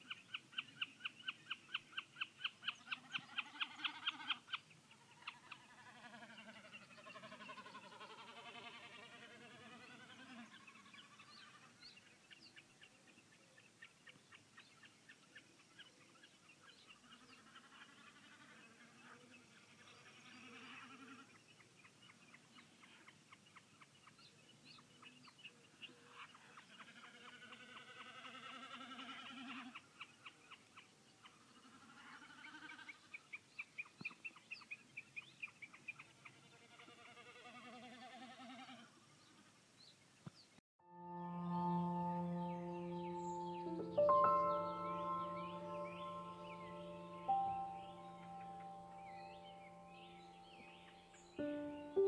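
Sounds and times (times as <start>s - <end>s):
wavering trill: 40.8s - 52.0s.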